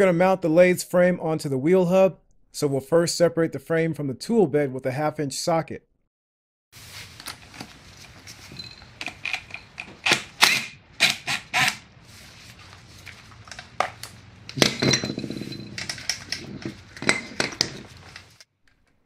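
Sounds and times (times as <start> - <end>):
metal parts rattling: 14.5 - 18.4.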